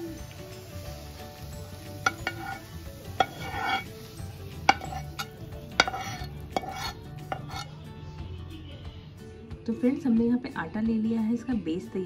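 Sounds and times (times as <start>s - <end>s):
spatula knocking pan and plate: 2.0s - 3.9s, 4.7s - 7.7s
metal spatula scraping pan: 2.0s - 7.7s.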